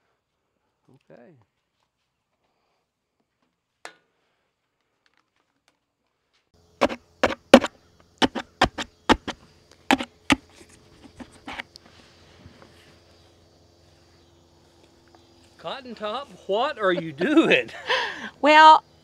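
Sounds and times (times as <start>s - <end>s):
stake knocking through plastic pot: 6.8s - 10.4s, 11.0s - 11.6s.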